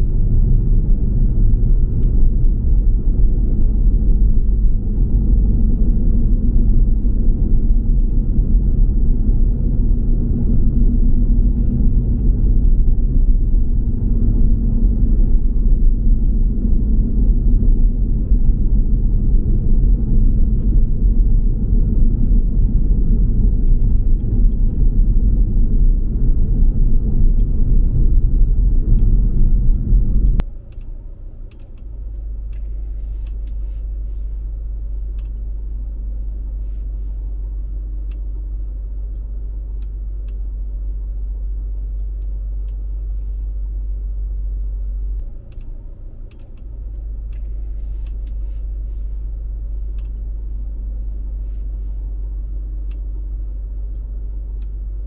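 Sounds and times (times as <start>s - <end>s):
car driving rumble: 0.0s - 55.0s
steady low hum: 0.0s - 55.0s
click: 29.7s - 33.6s, 35.1s - 35.4s, 39.1s - 40.4s, 45.2s - 45.7s, 46.3s - 48.4s, 49.9s - 50.3s, 52.8s - 53.1s, 53.9s - 54.8s.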